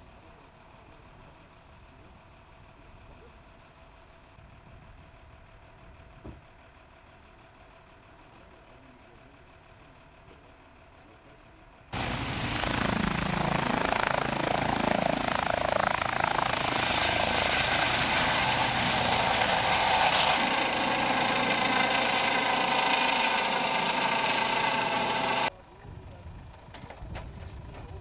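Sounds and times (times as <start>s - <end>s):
helicopter rotor and turbine: 11.9s - 28.0s.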